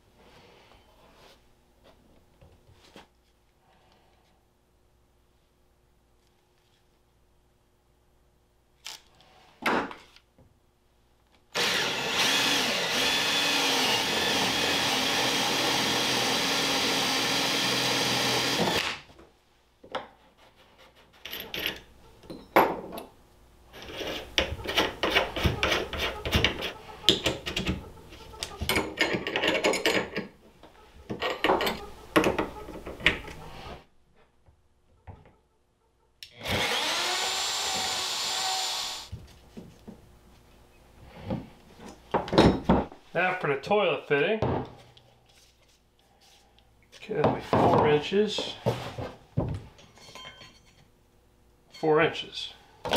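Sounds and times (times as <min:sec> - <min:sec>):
power drill boring plastic: 0:11.6 - 0:18.9, 0:36.4 - 0:39.1
router starting up: 0:11.6 - 0:19.0, 0:36.4 - 0:39.1.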